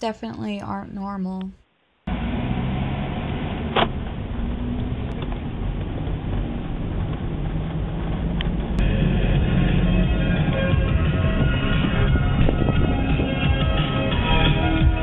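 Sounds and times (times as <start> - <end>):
car cabin road and engine rumble: 2.1 - 15.0
music: 8.8 - 15.0.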